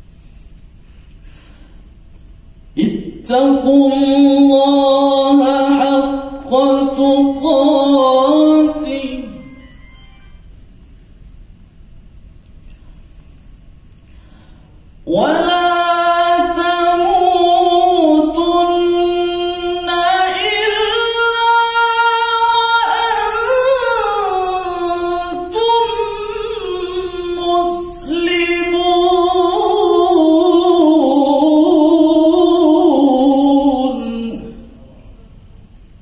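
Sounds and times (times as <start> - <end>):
man reciting melodically: 2.7 - 9.8, 15.0 - 35.1.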